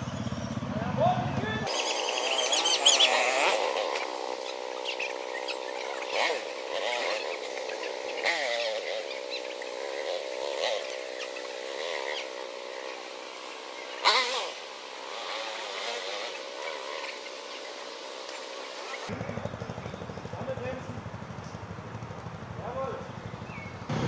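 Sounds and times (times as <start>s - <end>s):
motorcycle engine revving: 0.0s - 24.0s.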